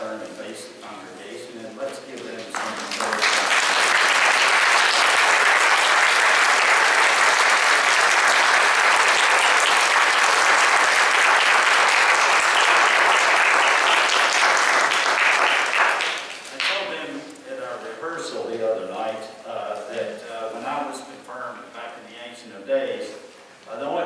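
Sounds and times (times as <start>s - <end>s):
congregation applauding: 2.2s - 17.0s.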